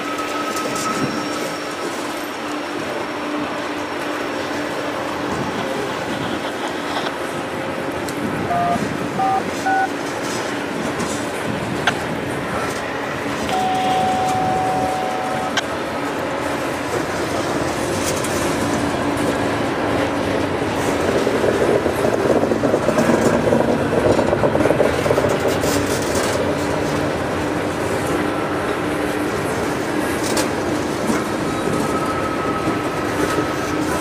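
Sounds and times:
train cars rolling on rails: 0.0 - 34.0
thin steady whine: 12.4 - 16.2.

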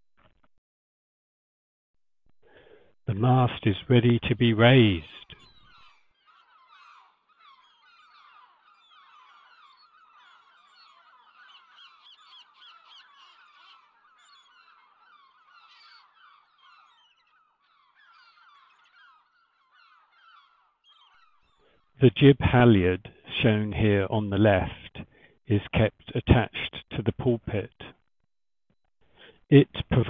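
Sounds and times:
flock of birds chattering: 3.1 - 21.9
geese honking: 4.8 - 21.3.

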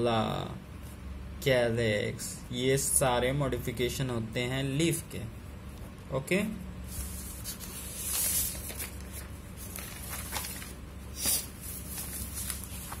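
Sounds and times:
page swishes: 6.9 - 13.0
paper rustling: 6.9 - 13.0.

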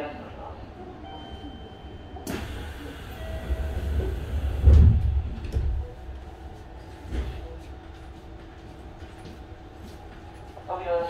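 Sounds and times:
train doors closing thud: 2.2 - 5.9.

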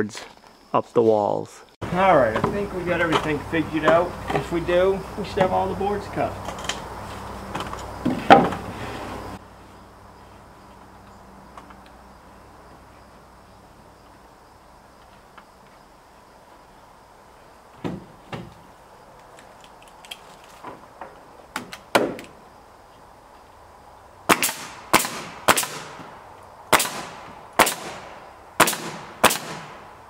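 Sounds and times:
nail gun shots into wood: 21.6 - 22.3, 24.3 - 26.1, 26.7 - 29.8.

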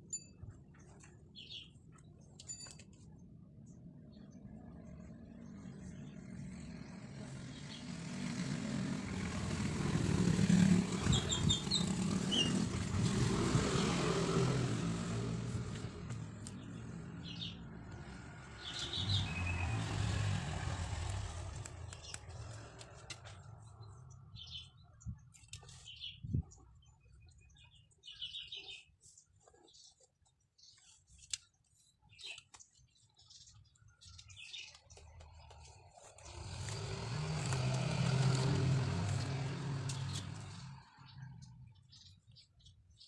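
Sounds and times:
vehicle passing by: 4.8 - 24.6, 35.6 - 42.1
bird chirps: 11.0 - 12.7.

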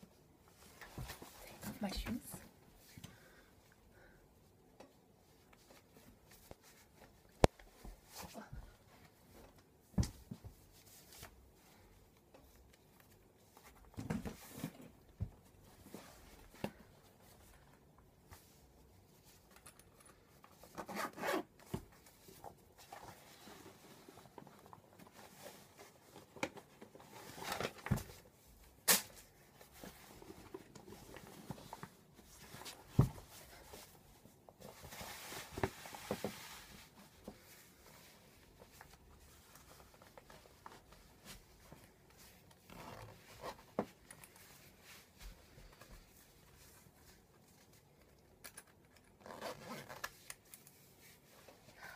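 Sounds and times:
rustling: 5.2 - 51.9
boot zips being drawn up: 20.8 - 21.5, 49.2 - 50.0.

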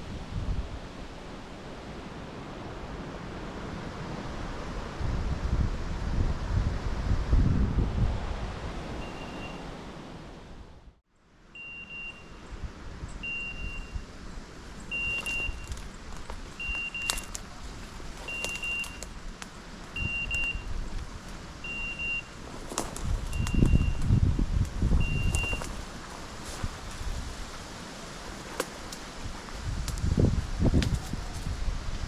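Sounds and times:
wind buffeting microphone: 0.0 - 9.4, 12.5 - 32.0
brush snapping: 15.1 - 21.4, 28.2 - 29.2, 29.8 - 30.1, 30.8 - 31.5.

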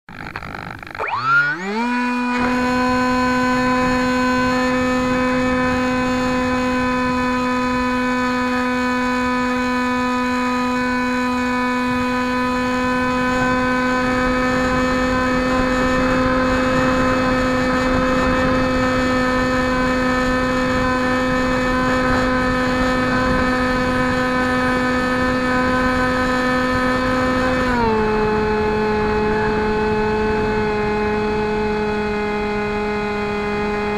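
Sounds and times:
electric propeller motor whining: 0.1 - 33.9.

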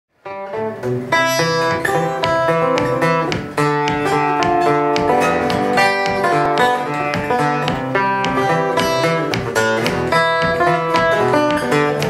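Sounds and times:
fingerpicked acoustic guitar: 0.2 - 12.0.

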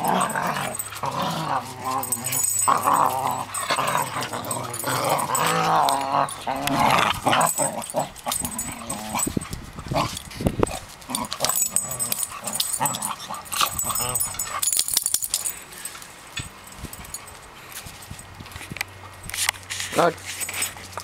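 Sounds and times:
dogs growling: 0.0 - 14.8
dogs tussling: 0.0 - 15.5.

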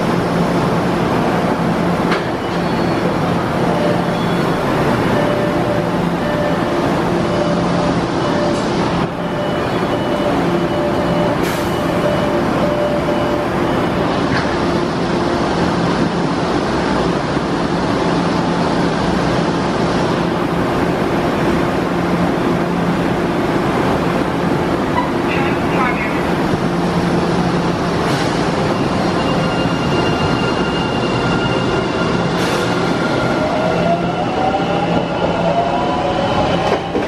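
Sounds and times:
subway car humming: 0.0 - 37.0
train doors sliding shut: 2.0 - 3.2, 11.2 - 12.0, 24.8 - 25.4, 32.2 - 33.2.

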